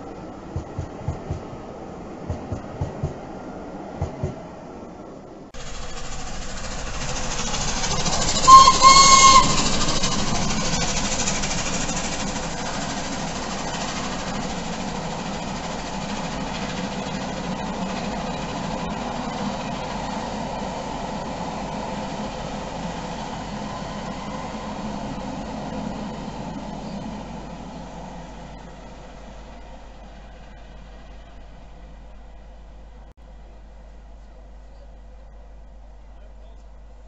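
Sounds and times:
train carriages rumbling on rails: 0.0 - 33.1
steam locomotive whistle: 6.9 - 11.0.

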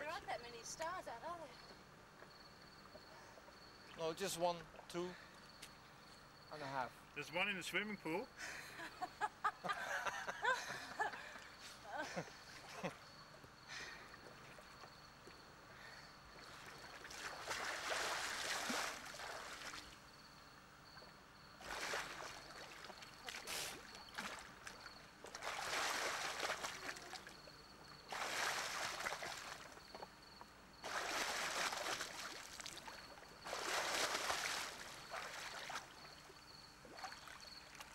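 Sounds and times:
swimmer splashing water: 16.3 - 20.0, 21.6 - 30.1, 30.8 - 37.9.

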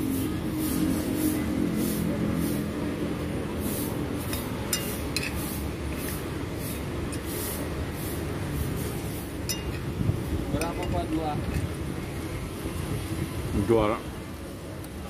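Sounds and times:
cutlery scraping on a plate: 4.2 - 6.1.

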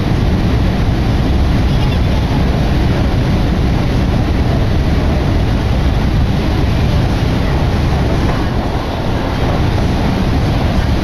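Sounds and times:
train rumble inside car: 0.0 - 11.0.

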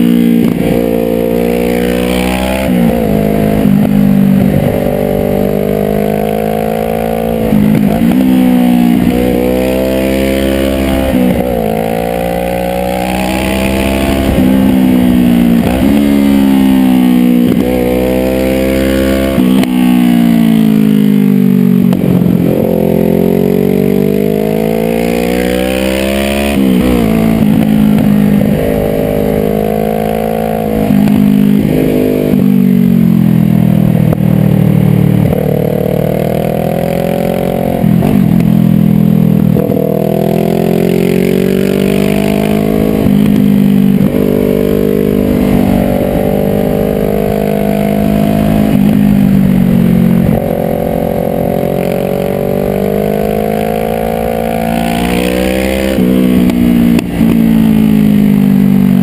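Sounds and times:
motorcycle engine revving: 0.0 - 59.0
wind and road noise: 0.0 - 59.0.

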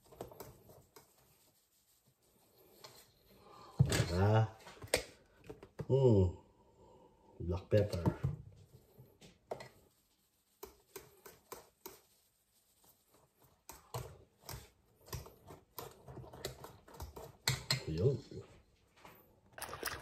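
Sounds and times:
utensil tapping and scraping a bowl: 7.8 - 12.2, 13.4 - 18.0
pepper shaken into a metal bowl: 19.6 - 20.0.

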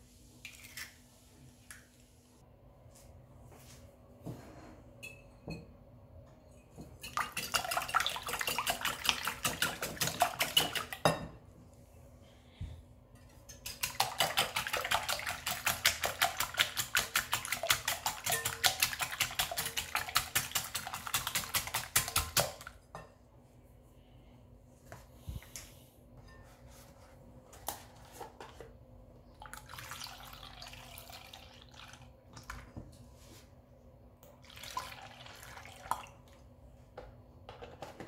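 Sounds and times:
whisk beating eggs in glass bowl: 7.0 - 11.0, 13.7 - 22.5.

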